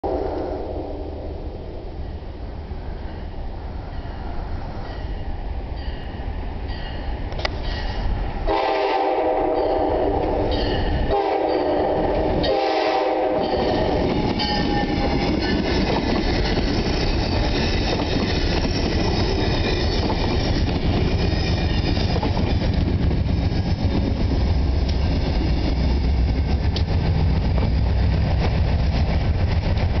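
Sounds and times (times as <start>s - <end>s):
low train rumble: 0.0s - 30.0s
train horn blasts: 8.4s - 15.1s
train wheels clattering on rails: 9.5s - 30.0s.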